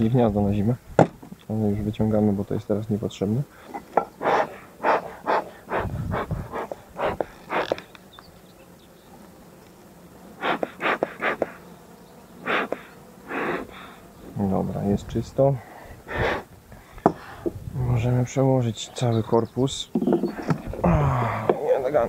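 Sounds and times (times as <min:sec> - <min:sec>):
bees humming: 0:01.7 - 0:22.0
hive tool scraping wood: 0:03.6 - 0:08.1, 0:10.4 - 0:11.7, 0:12.4 - 0:14.4.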